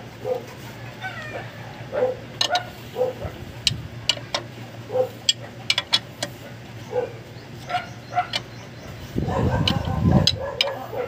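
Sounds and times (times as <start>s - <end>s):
dog yipping: 1.0s - 3.3s, 4.9s - 5.2s, 6.9s - 8.4s, 9.2s - 11.0s
wrench clicking on bolts: 2.4s - 2.8s, 3.6s - 4.5s, 5.2s - 6.4s, 7.6s - 8.6s, 9.5s - 10.8s.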